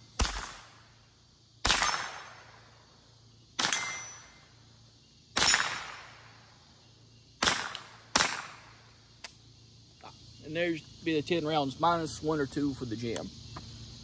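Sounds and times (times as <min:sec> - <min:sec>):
rifle shots with echo: 0:00.2 - 0:00.7, 0:01.6 - 0:02.4, 0:05.4 - 0:06.2, 0:07.4 - 0:08.8.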